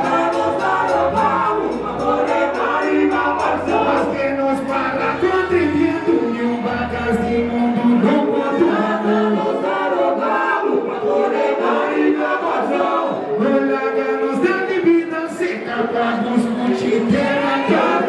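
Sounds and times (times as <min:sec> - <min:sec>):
man singing into microphone: 0:00.0 - 0:09.4, 0:13.1 - 0:18.0
voices singing along: 0:00.0 - 0:18.0.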